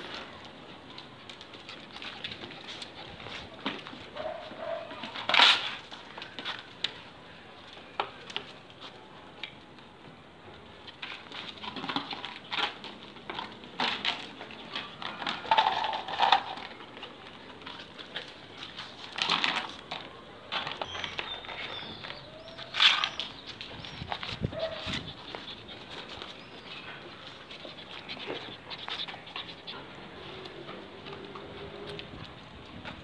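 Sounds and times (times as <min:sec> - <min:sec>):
dogs play-fighting: 0:00.0 - 0:06.4, 0:20.5 - 0:32.0.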